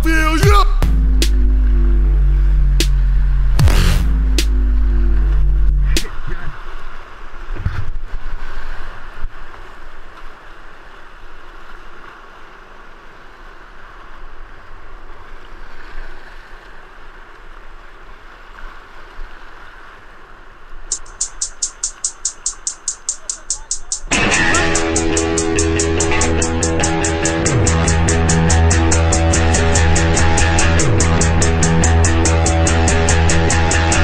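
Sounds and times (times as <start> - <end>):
fast high ticking beat: 0.0 - 1.7, 20.9 - 34.0
whitewater rushing and splashing: 0.0 - 34.0.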